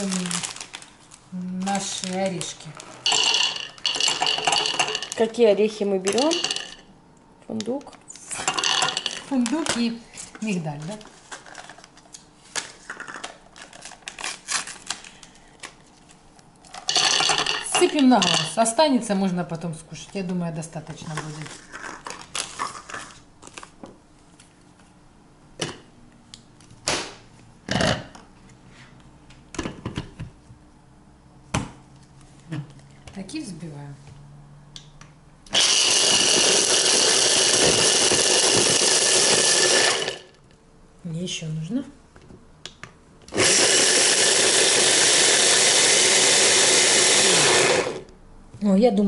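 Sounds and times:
hand blender grinding nuts: 1.7s - 5.4s, 6.1s - 6.8s, 16.9s - 18.6s, 35.5s - 40.4s, 43.3s - 48.1s.

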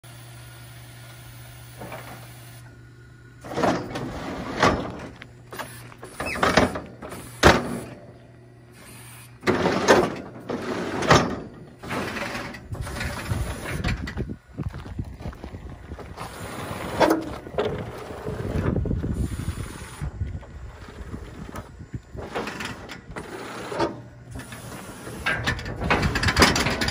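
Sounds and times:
low steady hum: 0.0s - 26.9s
hydraulic rushing: 1.1s - 14.4s, 15.8s - 26.9s
metal gates clanking: 9.5s - 14.2s, 22.2s - 26.9s.

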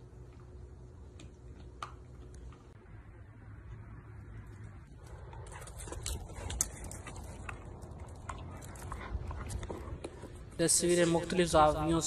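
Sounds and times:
low steady rumble: 0.0s - 12.0s
dog paws tapping on ground: 4.9s - 12.0s.

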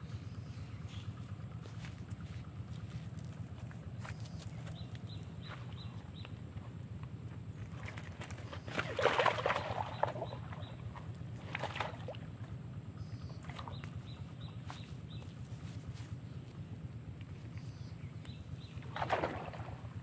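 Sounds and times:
steady low hum: 0.0s - 20.0s
pond water splashing: 7.6s - 15.1s, 18.5s - 20.0s.

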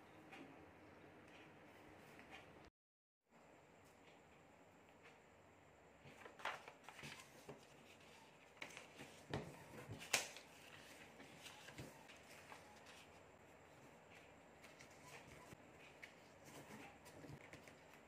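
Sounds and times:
paper rustling and crinkling: 6.0s - 13.3s, 14.1s - 18.0s
crisp paper snap: 10.0s - 10.5s.

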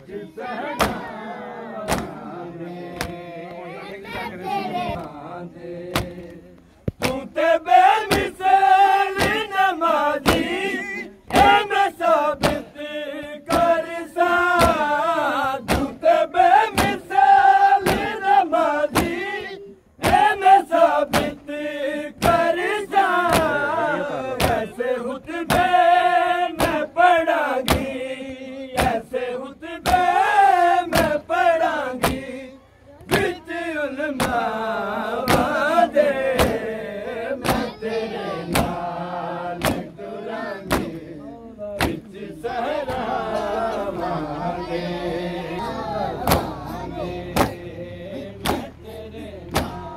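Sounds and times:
men singing lament in chorus: 0.0s - 49.9s
hands slapping chests: 1.8s - 2.2s, 3.0s - 3.2s, 5.9s - 7.3s, 9.1s - 9.5s, 10.2s - 10.6s, 11.3s - 11.6s, 12.3s - 12.7s, 14.6s - 14.9s, 17.8s - 18.2s, 20.0s - 20.3s, 21.1s - 21.4s, 23.2s - 23.6s, 24.4s - 24.7s, 25.4s - 25.7s, 26.6s - 26.8s, 27.6s - 27.9s, 29.8s - 30.1s, 30.9s - 31.2s, 32.0s - 32.2s, 34.1s - 34.5s, 35.2s - 35.6s, 36.3s - 36.6s, 37.4s - 37.8s, 38.5s - 38.8s, 39.6s - 40.0s, 40.6s - 41.1s, 41.8s - 42.1s, 46.2s - 46.6s, 47.4s - 47.6s, 48.4s - 48.8s, 49.5s - 49.9s.

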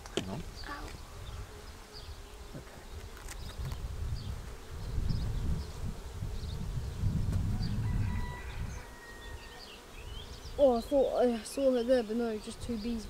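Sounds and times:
honey bees buzzing: 0.0s - 13.0s.

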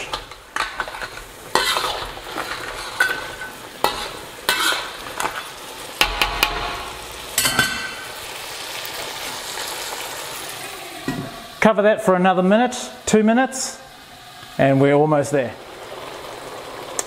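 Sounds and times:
ladle scraping a steel wok: 0.0s - 5.5s
sauce sizzling: 0.0s - 17.0s.

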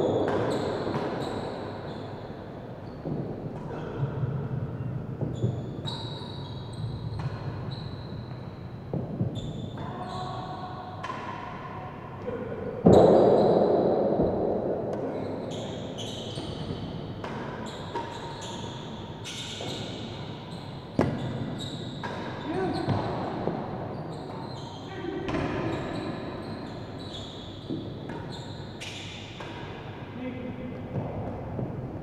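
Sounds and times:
rackets striking ball: 0.0s - 1.7s, 21.0s - 24.4s, 27.6s - 30.0s.

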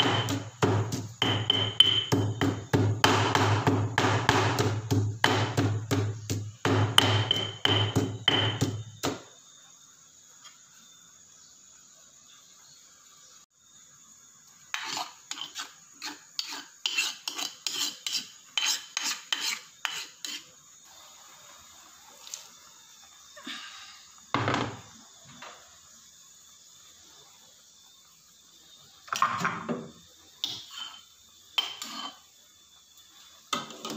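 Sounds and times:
pestle pounding in stone mortar: 0.0s - 9.2s.

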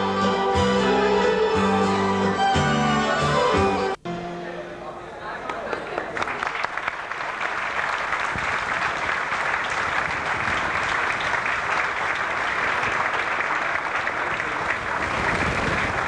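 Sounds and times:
crowd applauding: 5.4s - 16.0s.

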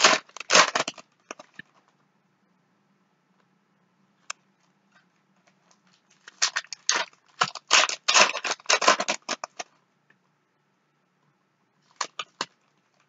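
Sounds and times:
foil wrapper crinkling: 0.0s - 1.6s, 6.0s - 9.8s, 11.9s - 13.0s.

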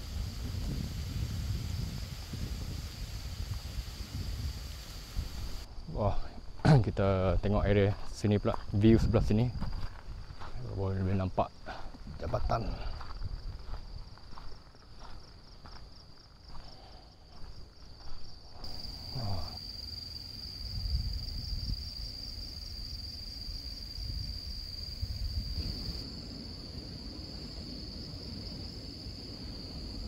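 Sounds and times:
wind rumbling on microphone: 0.0s - 6.6s, 7.2s - 14.5s, 20.6s - 30.0s
shrill insect chorus: 0.0s - 6.7s, 7.5s - 30.0s.

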